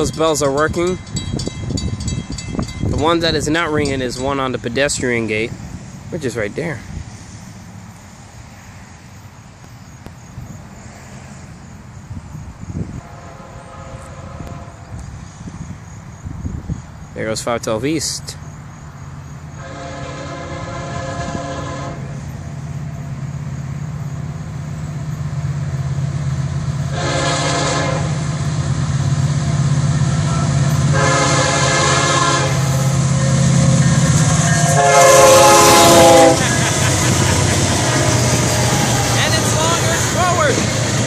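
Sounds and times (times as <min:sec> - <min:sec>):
locomotive horn blasts: 0:12.9 - 0:14.9, 0:19.6 - 0:22.2, 0:26.9 - 0:28.3, 0:30.0 - 0:36.7
diesel engine rumble: 0:22.0 - 0:41.0.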